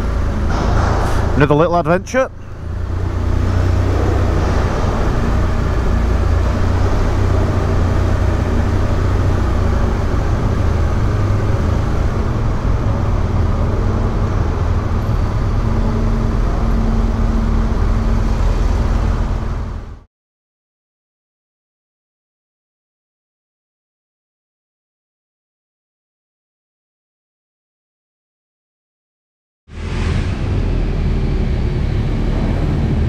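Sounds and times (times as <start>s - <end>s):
motorcycle engine rumbling: 0.0s - 20.0s.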